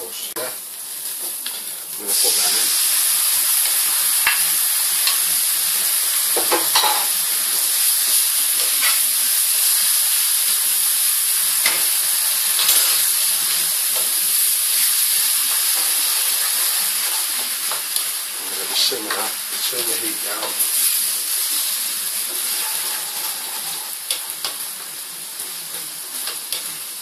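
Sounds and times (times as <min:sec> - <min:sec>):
tomatoes sizzling in a pan: 0:00.0 - 0:27.0
spatula scraping a pan: 0:12.5 - 0:13.1, 0:21.4 - 0:24.4.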